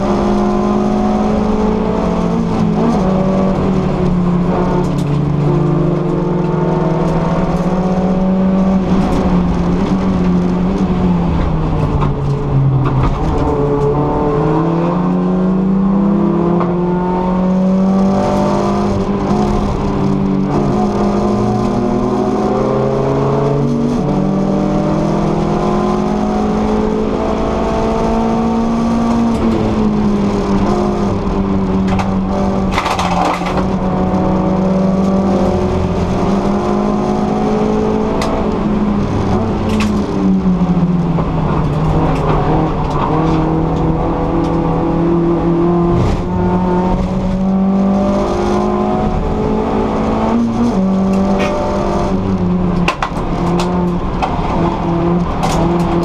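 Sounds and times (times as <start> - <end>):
race car engine at high revs: 0.0 - 56.0.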